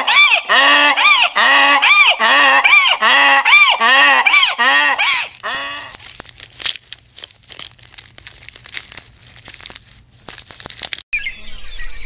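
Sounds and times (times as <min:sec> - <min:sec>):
honking animal call: 0:00.0 - 0:06.4
leaves rustling and twigs snapping: 0:04.9 - 0:11.0.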